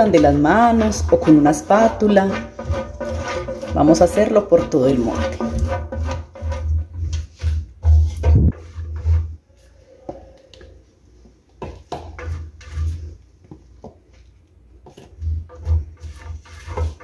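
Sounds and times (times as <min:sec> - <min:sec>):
spatula tapping pan: 0:00.0 - 0:09.2, 0:11.6 - 0:13.0
spatula scraping metal pan: 0:00.0 - 0:10.2, 0:12.0 - 0:13.2, 0:15.0 - 0:17.0.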